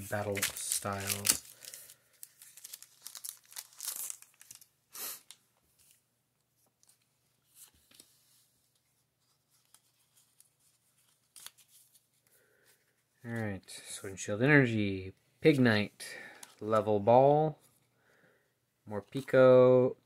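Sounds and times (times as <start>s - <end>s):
foil wrapper crinkling: 0.1s - 4.7s
faint card rustling: 5.6s - 13.7s.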